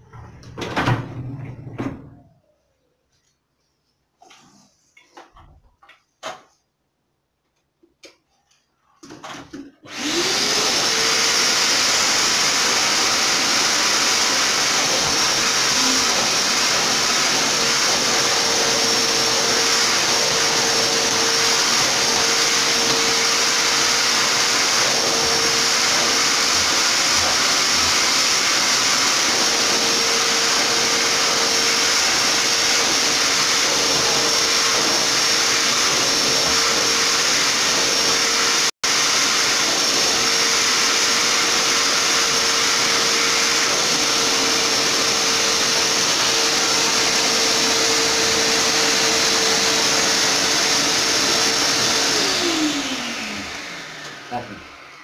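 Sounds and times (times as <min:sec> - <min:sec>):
vacuum cleaner running: 0:09.0 - 0:55.0.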